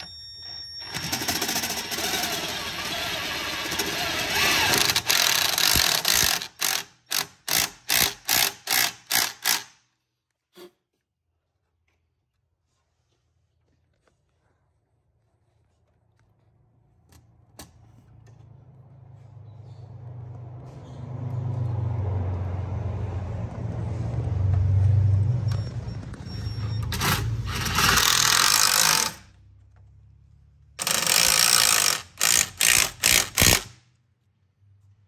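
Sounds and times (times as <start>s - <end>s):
power driver driving screws: 0.8s - 9.8s, 26.8s - 29.2s, 30.8s - 33.8s.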